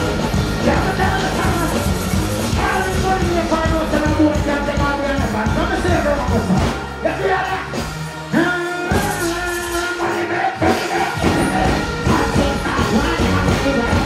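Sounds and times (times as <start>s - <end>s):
dancehall music: 0.0s - 14.0s
performer singing over beat: 6.4s - 14.0s.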